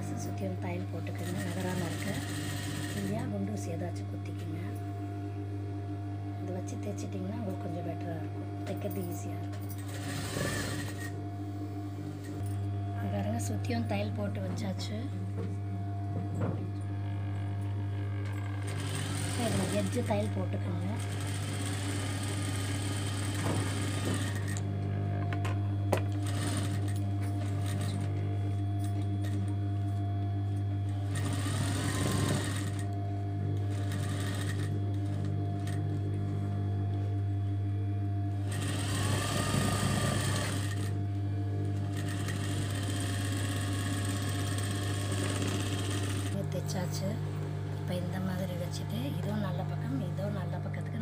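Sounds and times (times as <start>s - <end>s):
steady low hum: 0.0s - 51.0s
sewing machine stitching: 0.4s - 3.3s, 9.8s - 11.2s, 18.0s - 24.6s, 26.2s - 28.1s, 31.0s - 32.9s, 33.6s - 35.8s, 38.4s - 41.0s, 41.8s - 46.4s.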